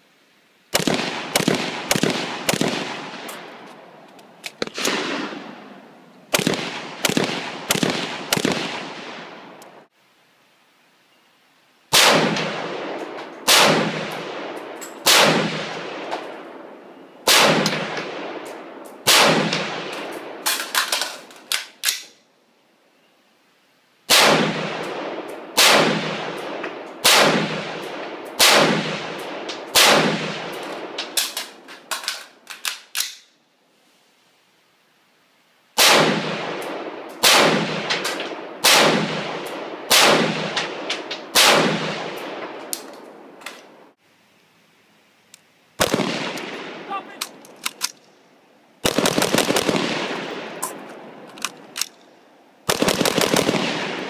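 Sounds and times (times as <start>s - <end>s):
rapid fire bursts: 0.7s - 3.3s, 6.3s - 9.2s, 48.8s - 50.6s, 52.6s - 54.0s
rifle shots echoing: 0.7s - 9.9s, 11.9s - 21.8s, 24.1s - 32.2s, 35.8s - 43.4s, 45.8s - 48.0s, 48.8s - 52.0s, 52.6s - 54.0s.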